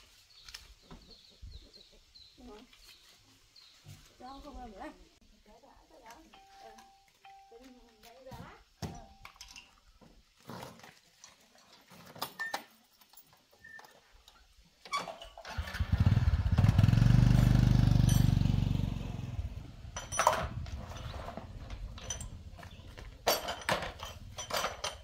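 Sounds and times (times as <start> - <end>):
motorcycle engine running: 15.5 - 21.2.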